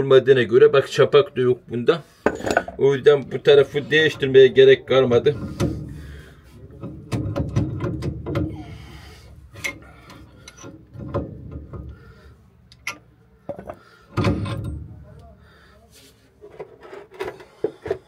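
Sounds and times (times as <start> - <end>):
metal parts clinking: 12.7 - 13.7.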